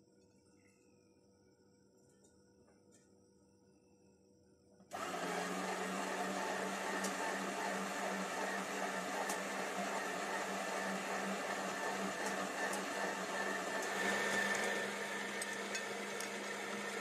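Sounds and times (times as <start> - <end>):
electric meat grinder humming: 4.9 - 17.0.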